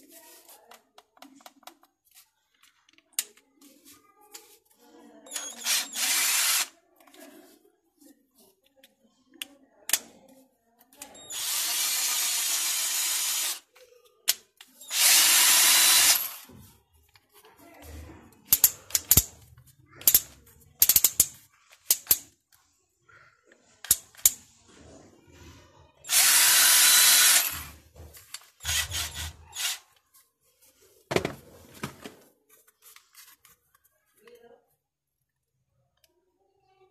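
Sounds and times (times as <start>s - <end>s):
cordless drill motor whine: 5.6s - 6.7s, 11.3s - 13.6s, 14.9s - 16.4s, 26.1s - 27.7s, 28.6s - 29.8s.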